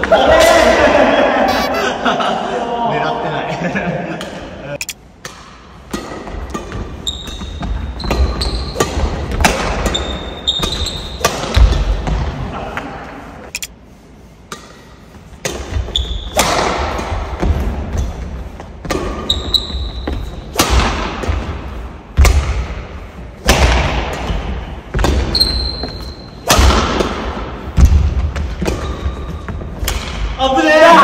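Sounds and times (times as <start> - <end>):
shoe squeaks: 1.5 - 1.8, 7.0 - 8.8, 9.8 - 11.2, 15.9 - 16.4, 19.2 - 20.4, 25.3 - 26.4
racket hitting shuttlecock: 5.2 - 12.2.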